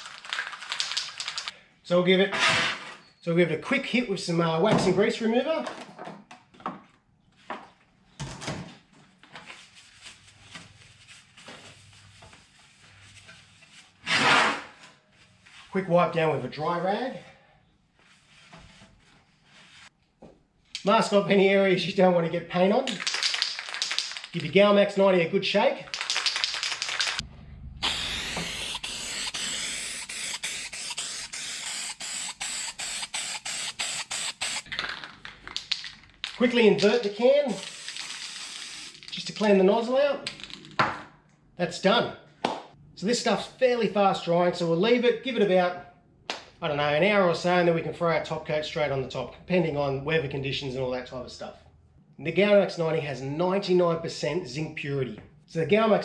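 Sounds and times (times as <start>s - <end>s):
aerosol can mixing ball rattling: 0.0s - 1.5s, 22.9s - 24.6s, 25.9s - 27.2s, 27.8s - 39.5s
spray paint hissing: 0.0s - 1.5s, 25.9s - 27.2s, 27.8s - 34.7s, 37.5s - 39.1s
rag rubbing strokes: 27.8s - 34.7s.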